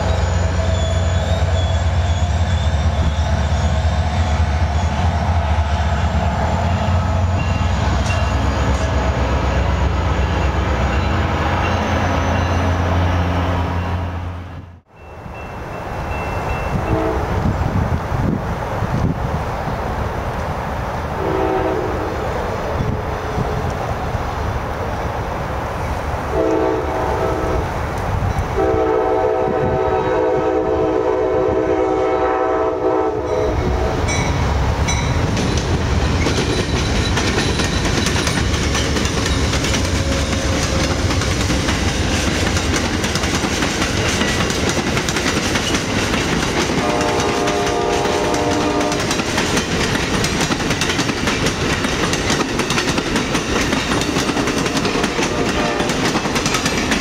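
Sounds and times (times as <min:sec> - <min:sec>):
diesel locomotive engines rumbling: 0:00.0 - 0:57.0
train horn chord: 0:16.7 - 0:17.4, 0:21.2 - 0:22.2, 0:26.3 - 0:27.7, 0:28.6 - 0:34.2, 0:46.8 - 0:49.1, 0:55.0 - 0:56.0
train wheels clicking over rail joints: 0:34.9 - 0:57.0.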